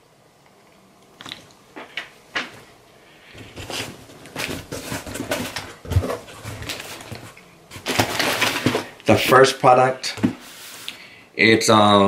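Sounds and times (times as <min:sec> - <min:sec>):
paper and cardboard rustling: 0:03.3 - 0:10.9.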